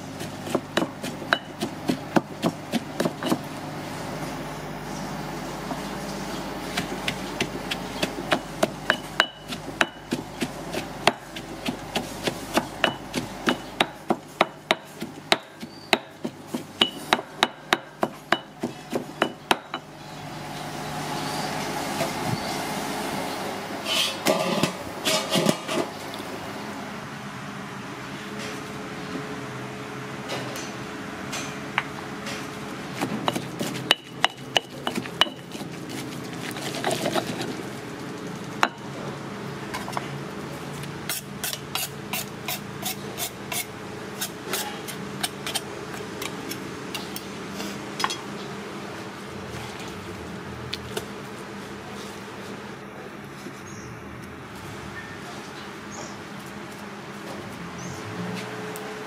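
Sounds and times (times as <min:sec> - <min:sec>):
stone pestle pounding in mortar: 0:00.2 - 0:03.5, 0:06.7 - 0:19.9, 0:33.0 - 0:35.7.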